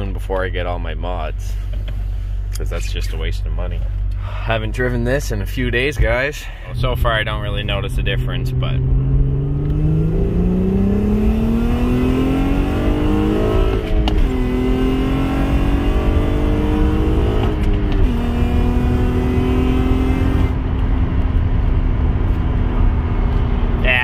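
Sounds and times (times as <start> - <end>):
car engine accelerating through gears: 6.0 - 24.0.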